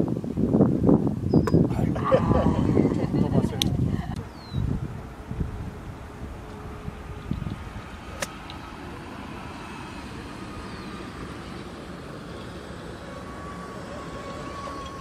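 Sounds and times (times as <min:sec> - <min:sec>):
low outdoor rumble: 0:00.0 - 0:15.0
golf club striking ball: 0:07.2 - 0:08.7.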